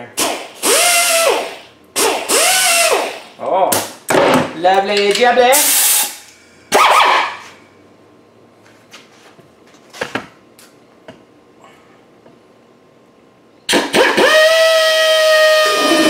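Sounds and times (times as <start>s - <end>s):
sanding tool high whine: 14.2s - 16.0s.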